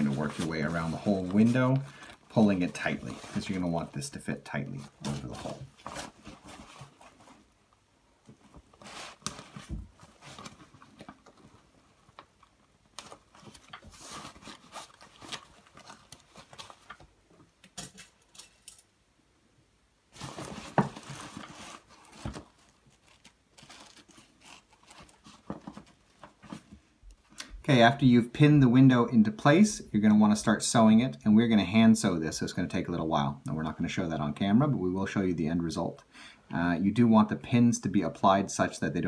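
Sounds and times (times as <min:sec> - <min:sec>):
plastic sheeting rustling: 0:00.0 - 0:07.6, 0:08.4 - 0:17.0, 0:20.1 - 0:26.7.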